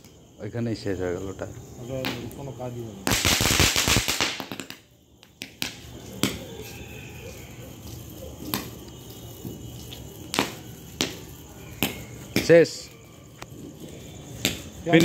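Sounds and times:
firework fountain hissing and crackling: 0:01.8 - 0:15.0
sharp single pops: 0:02.0 - 0:06.7, 0:08.4 - 0:08.9, 0:10.2 - 0:12.7, 0:14.4 - 0:15.0.

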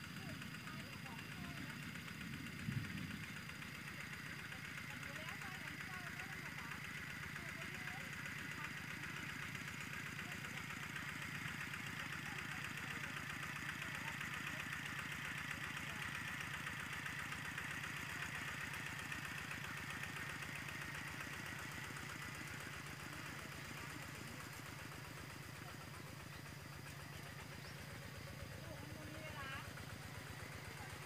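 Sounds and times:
diesel engine chugging: 0:00.0 - 0:31.0.

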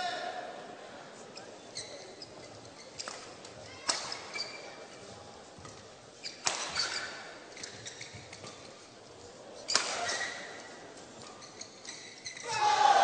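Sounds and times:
shoes squeaking on court: 0:01.4 - 0:12.5
rackets striking shuttlecock: 0:06.4 - 0:07.0, 0:09.7 - 0:10.1.

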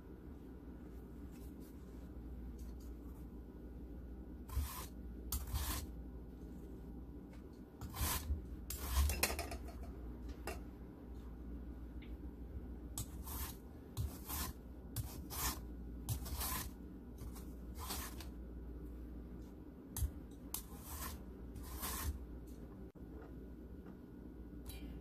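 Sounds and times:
vegetable peeler scraping: 0:04.5 - 0:05.9, 0:07.8 - 0:09.2, 0:13.0 - 0:18.2, 0:20.5 - 0:22.2.

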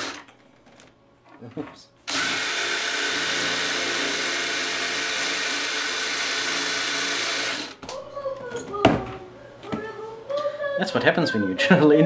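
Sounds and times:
cordless drill drilling into metal: 0:00.0 - 0:00.2, 0:02.1 - 0:07.8.

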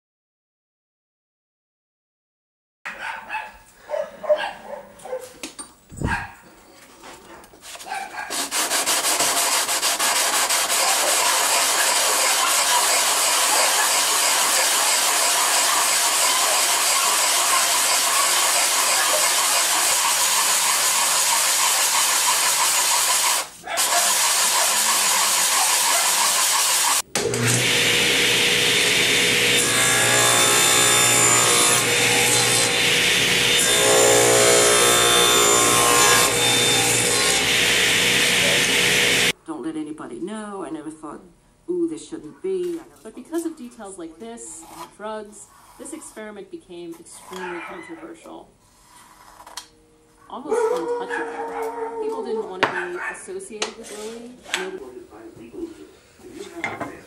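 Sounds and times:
wood rubbed on sandpaper: 0:07.6 - 0:27.0
table saw running: 0:08.5 - 0:39.3.

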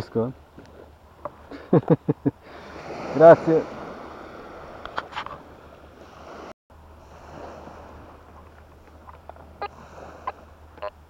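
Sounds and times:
surf and wind hiss: 0:00.0 - 0:11.0.

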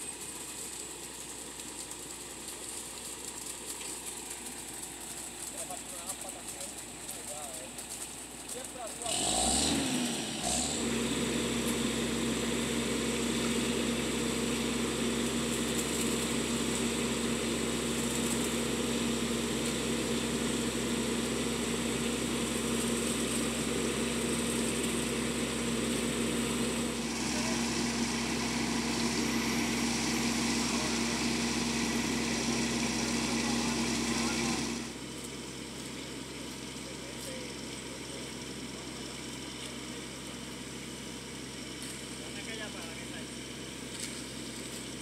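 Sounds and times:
diesel engine running: 0:00.0 - 0:45.0
mixer drum turning: 0:24.3 - 0:35.0.

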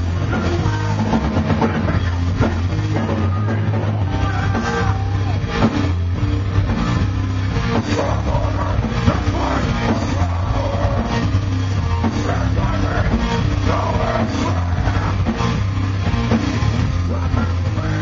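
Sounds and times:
bass: 0:00.0 - 0:18.0
drum kit: 0:00.0 - 0:18.0
electric guitars: 0:00.0 - 0:18.0.

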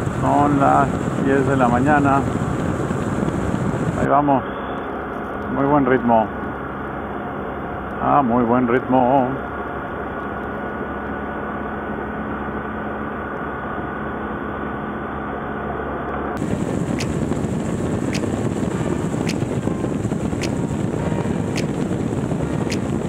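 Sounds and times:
wind rush on microphone: 0:00.0 - 0:05.5, 0:16.4 - 0:23.0
motorcycle engine cruising: 0:16.4 - 0:23.0.

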